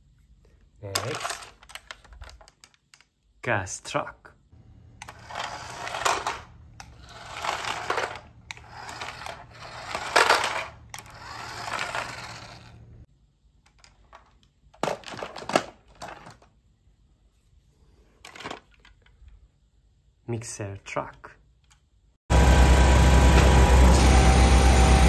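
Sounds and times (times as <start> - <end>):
plastic toys clattering: 0.8 - 3.2, 5.0 - 12.8, 13.6 - 16.6, 18.2 - 19.4
toy truck rolling on tile: 0.9 - 3.1, 5.0 - 14.4.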